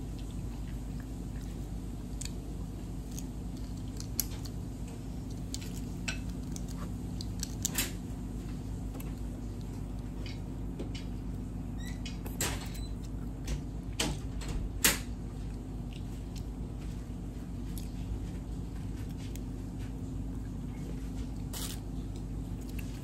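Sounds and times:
steady low hum: 0:00.0 - 0:23.0
crab shells cracking: 0:02.0 - 0:10.4.

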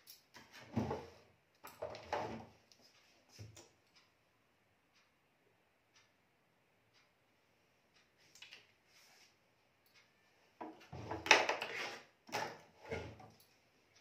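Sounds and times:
objects clattering and knocking: 0:00.3 - 0:02.5, 0:10.6 - 0:13.4.

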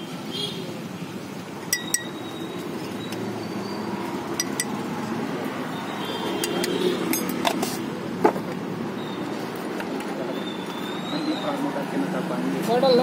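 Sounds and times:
steady background noise: 0:00.0 - 0:13.0
glasses clinking on metal counter: 0:01.7 - 0:02.2, 0:04.4 - 0:04.8.

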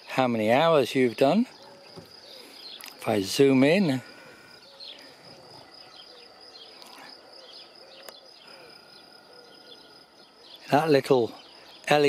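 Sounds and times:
birds chirping: 0:00.0 - 0:12.0.

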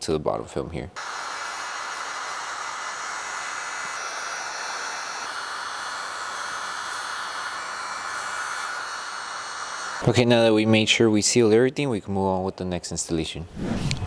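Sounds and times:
heat gun blowing hiss: 0:01.0 - 0:10.5.

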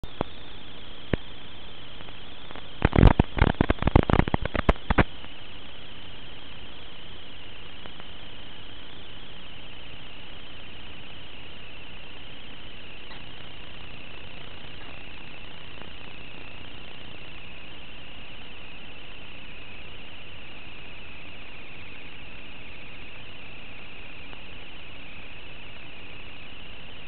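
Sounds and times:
steady hiss with high whine: 0:00.0 - 0:27.0
loud sharp crackling clicks: 0:02.0 - 0:05.3.

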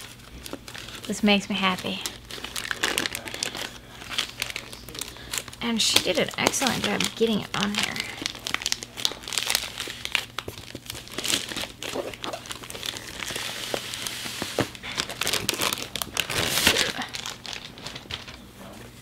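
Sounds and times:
envelope crinkling and rustling: 0:00.0 - 0:18.9.

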